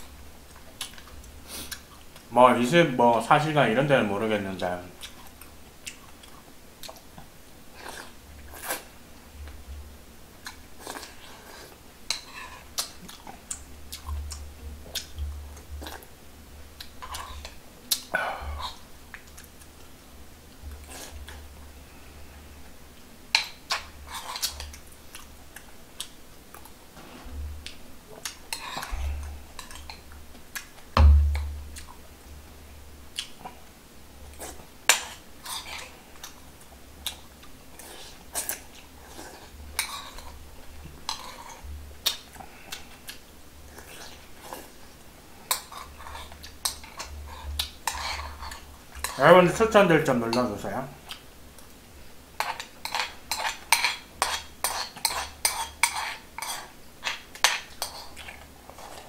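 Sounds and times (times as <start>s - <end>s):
chewing: 0.5s - 2.3s, 5.0s - 9.6s, 10.4s - 16.1s, 23.3s - 26.8s, 27.6s - 30.9s, 33.2s - 33.7s, 34.3s - 44.8s, 51.0s - 51.7s, 52.4s - 59.0s
heavy thump: 31.0s - 31.7s.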